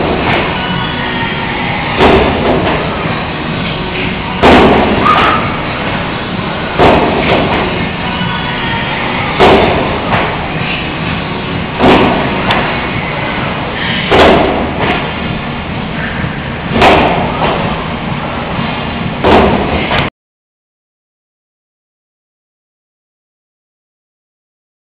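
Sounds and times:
steady background noise: 0.0 - 20.1
leg press machine thudding: 1.8 - 8.3, 9.2 - 20.1.

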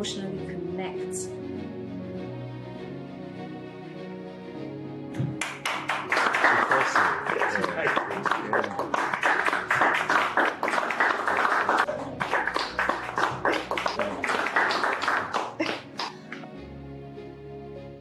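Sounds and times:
applause: 5.2 - 16.4.

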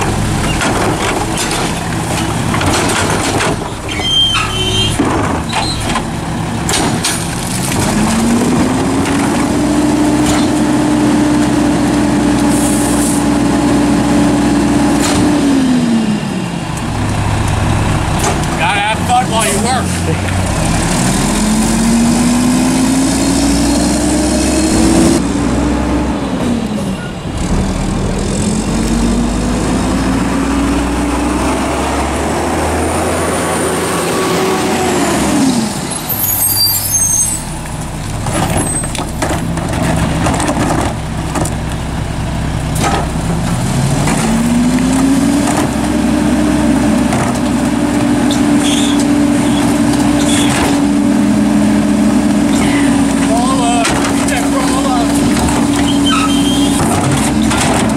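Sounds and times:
knocks of carts and metal: 0.0 - 10.7, 17.9 - 19.8, 38.1 - 41.7, 42.7 - 46.0, 52.6 - 57.9
truck diesel engine revving: 0.0 - 57.9.

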